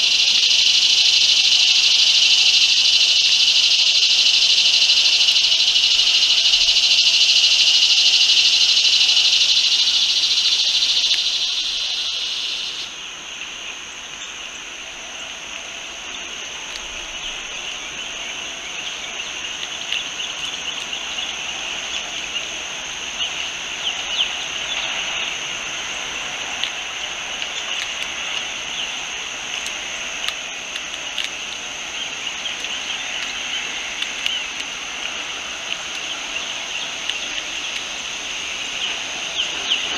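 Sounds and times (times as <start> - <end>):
thin high insect trill: 0.0 - 13.0
faint scattered ticks: 0.0 - 39.9
high-pitched insect chorus: 0.0 - 39.9.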